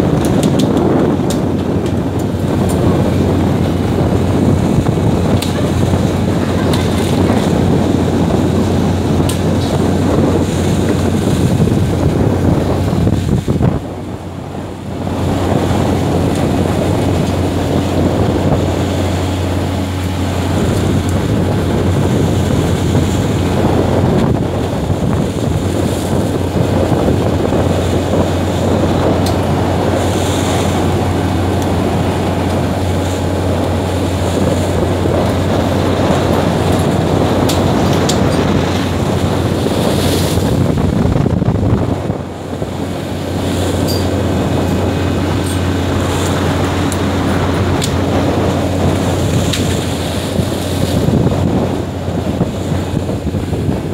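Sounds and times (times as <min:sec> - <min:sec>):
boat engine drone: 0:00.0 - 0:53.9
sea water churning along hull: 0:00.0 - 0:53.9
wind rushing: 0:00.0 - 0:53.9.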